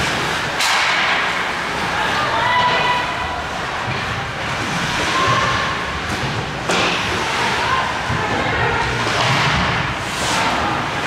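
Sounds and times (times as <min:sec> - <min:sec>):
ice rink din: 0:00.0 - 0:11.0
loud sharp crack: 0:00.6 - 0:01.5.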